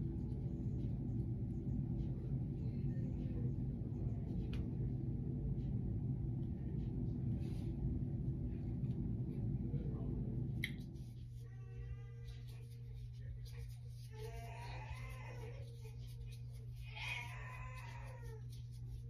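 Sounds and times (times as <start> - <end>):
deep even hum: 0.0 - 19.0
low rumble: 0.0 - 19.0.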